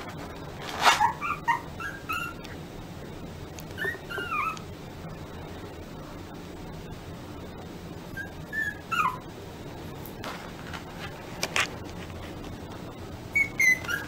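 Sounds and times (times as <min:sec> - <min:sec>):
puppy yipping and whimpering: 0:00.8 - 0:02.5, 0:03.7 - 0:04.7, 0:08.1 - 0:09.3, 0:13.3 - 0:14.0.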